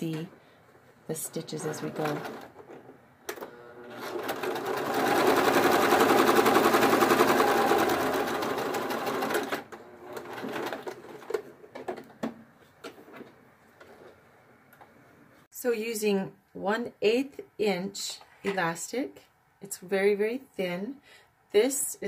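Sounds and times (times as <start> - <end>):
sewing machine stitching: 1.6 - 11.5.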